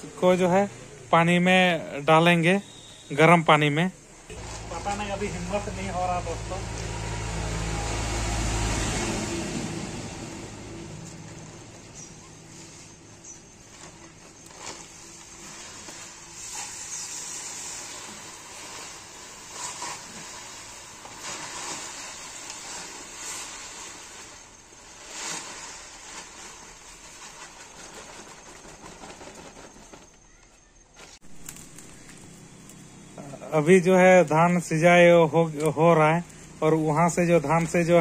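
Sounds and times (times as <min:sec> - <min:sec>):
sack rustling: 0:04.3 - 0:08.1, 0:09.2 - 0:30.4
grain pouring into water: 0:14.8 - 0:27.8.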